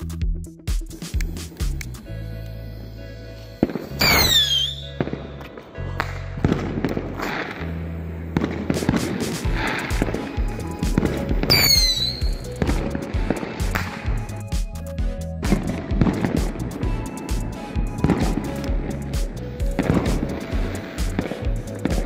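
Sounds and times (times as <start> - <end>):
background music: 0.0 - 22.0
firework hissing and crackling: 0.9 - 5.4, 6.4 - 14.4, 15.5 - 22.0
firework rocket crack: 3.3 - 14.3
falling firework whistle: 3.6 - 5.2, 11.5 - 12.5.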